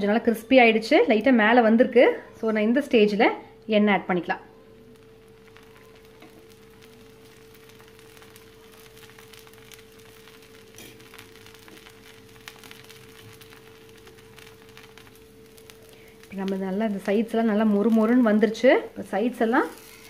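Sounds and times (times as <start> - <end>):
steady hum: 0.0 - 20.0
batter sizzling on hot griddle: 4.4 - 20.0.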